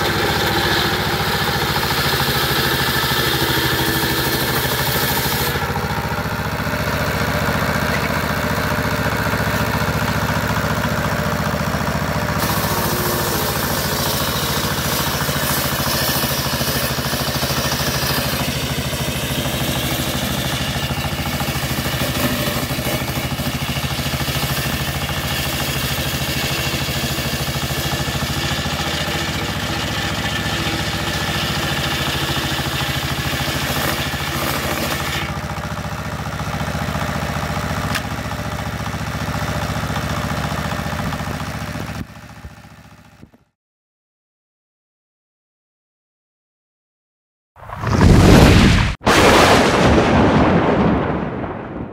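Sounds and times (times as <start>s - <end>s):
table saw cutting wood: 0.0s - 35.7s
diesel engine running: 0.0s - 43.3s.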